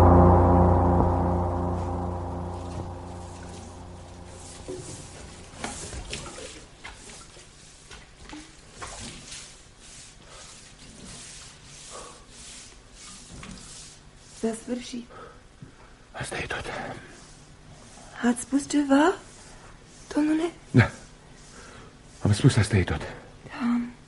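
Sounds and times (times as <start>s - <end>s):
deep ringing tone: 0.0s - 6.5s.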